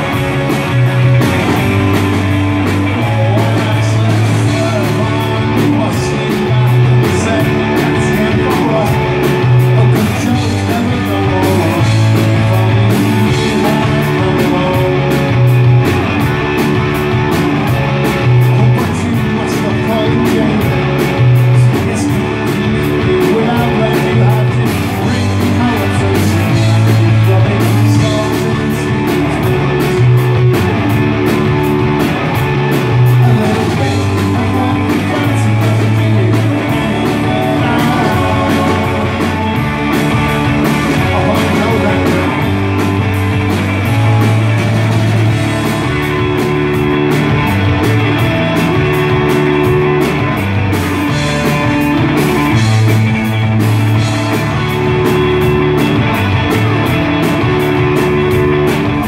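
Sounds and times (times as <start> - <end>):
bass guitar: 0.0 - 59.0
distorted electric guitars: 0.0 - 59.0
steady drum beat: 0.0 - 59.0
male singer: 2.6 - 15.7, 18.2 - 30.2, 32.9 - 42.7.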